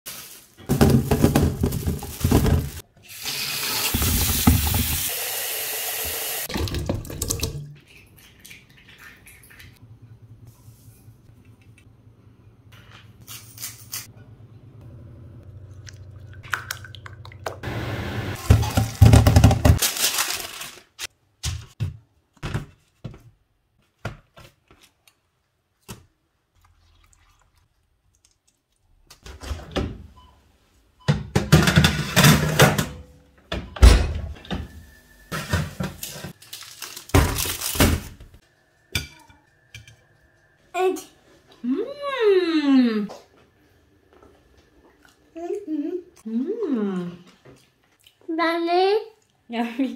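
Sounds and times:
kitchen handling: 0:00.6 - 0:02.8, 0:18.4 - 0:20.4, 0:31.1 - 0:38.3.

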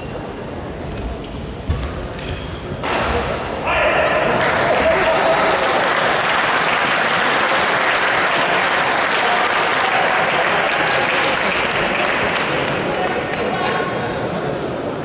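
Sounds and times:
spectators applauding: 0:04.3 - 0:13.4.

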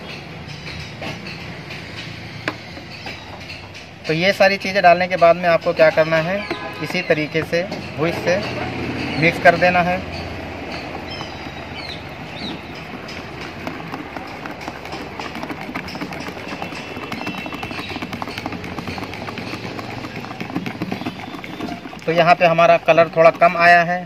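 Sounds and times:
whisk clicking against plastic bowl: 0:09.3 - 0:24.0.

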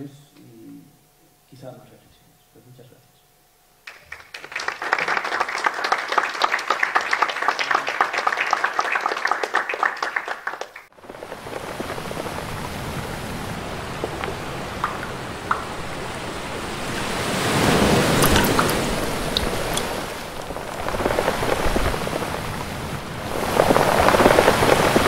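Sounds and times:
audience applauding: 0:03.8 - 0:13.1, 0:13.7 - 0:25.0
sea waves rushing: 0:11.0 - 0:25.0.

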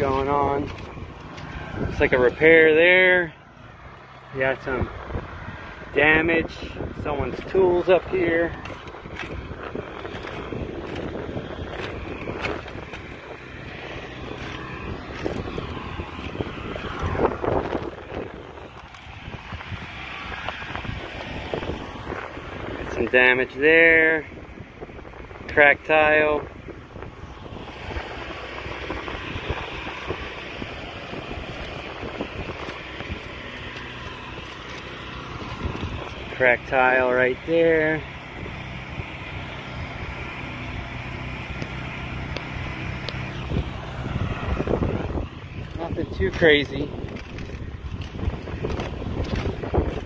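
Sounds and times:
footsteps on roof tiles: 0:00.0 - 0:01.8, 0:08.5 - 0:17.1, 0:45.6 - 0:50.0
wind rumbling on microphone: 0:00.0 - 0:50.0.

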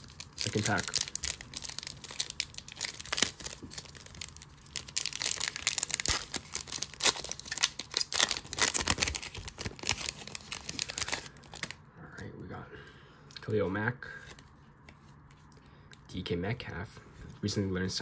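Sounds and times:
foil wrapper tearing and crinkling: 0:00.0 - 0:11.8.

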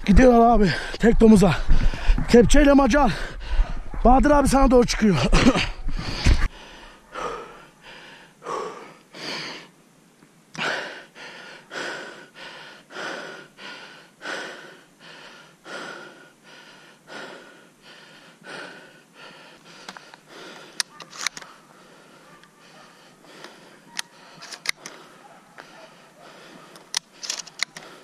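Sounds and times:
person breathing hard: 0:00.6 - 0:02.3, 0:03.0 - 0:04.0, 0:05.6 - 0:09.8, 0:10.6 - 0:28.0
sharp clicks: 0:20.8 - 0:21.5, 0:23.9 - 0:25.0, 0:26.8 - 0:27.9.

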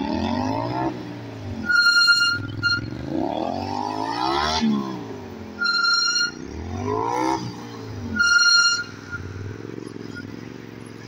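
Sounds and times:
high-pitched squeal: 0:01.6 - 0:04.4, 0:05.6 - 0:07.4, 0:08.0 - 0:10.3
motorcycle engine revving: 0:06.3 - 0:10.3.

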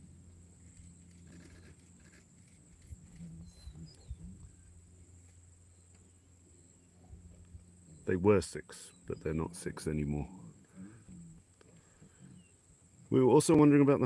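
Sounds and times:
steady low hum: 0:00.0 - 0:14.0
lions growling and feeding: 0:00.6 - 0:05.3, 0:08.9 - 0:13.0.

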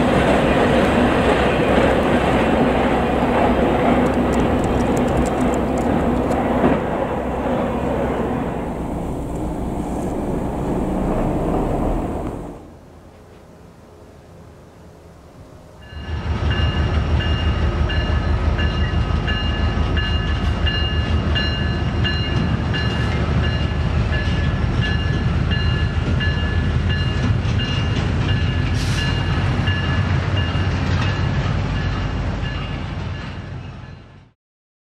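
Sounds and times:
locomotive engine rumble: 0:00.0 - 0:33.6
rattling train wheels: 0:16.0 - 0:34.1.

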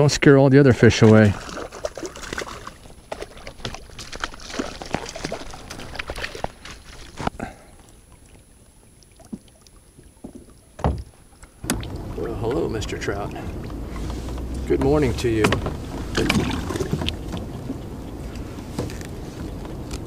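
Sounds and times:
water sloshing: 0:00.0 - 0:20.0
fish splashing at surface: 0:00.8 - 0:07.7, 0:15.9 - 0:17.8
dull thump: 0:10.2 - 0:12.0, 0:15.4 - 0:17.5.

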